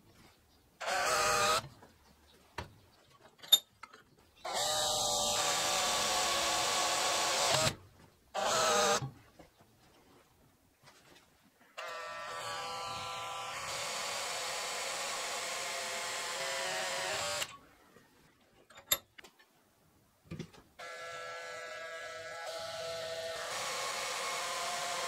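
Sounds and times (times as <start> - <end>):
power tool motor whine: 4.5 - 7.8, 8.4 - 9.0, 11.8 - 17.5, 20.8 - 25.0.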